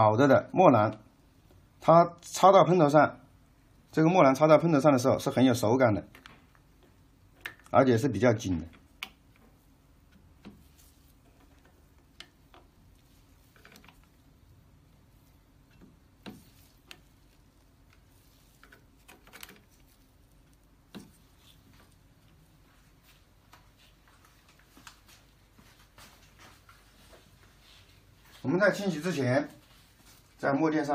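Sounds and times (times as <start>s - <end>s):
small plastic parts clicking: 18.6s - 19.8s.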